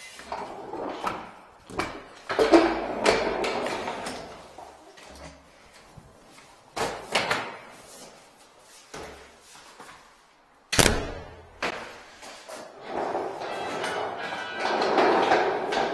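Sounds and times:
door shutting with a bang: 0:10.8 - 0:11.4.

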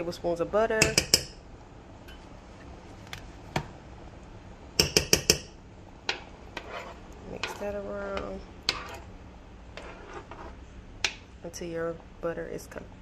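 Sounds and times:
spoon knocking against a pan: 0:04.8 - 0:06.3.

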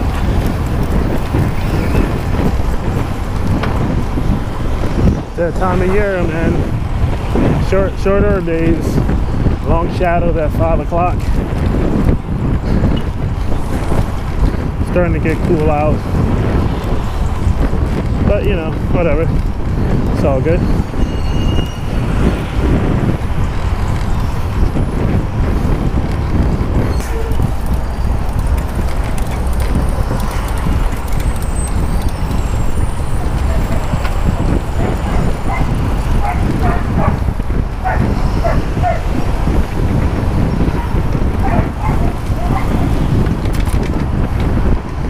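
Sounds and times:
faint road noise: 0:00.0 - 0:45.0
wind buffeting microphone: 0:00.0 - 0:45.0
high-pitched squeaks: 0:21.0 - 0:22.1.

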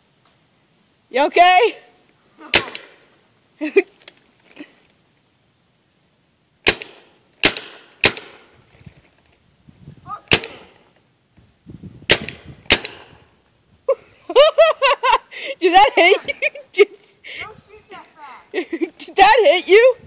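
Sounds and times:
paintball gun shots: 0:02.5 - 0:03.1, 0:06.6 - 0:08.5, 0:10.3 - 0:10.8, 0:12.1 - 0:13.3.

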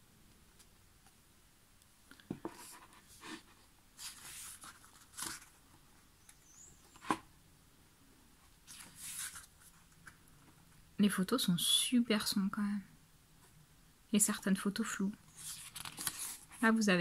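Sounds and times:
book pages turning: 0:04.0 - 0:07.2, 0:08.6 - 0:10.2, 0:15.3 - 0:16.6.

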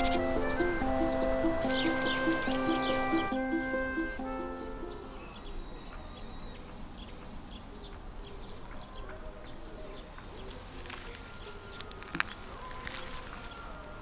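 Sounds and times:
high chirps chorus: 0:00.0 - 0:06.8.

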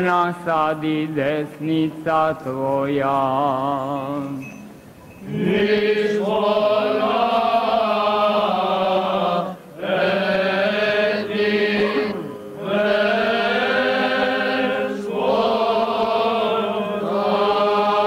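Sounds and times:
male voices chanting: 0:05.2 - 0:18.0.

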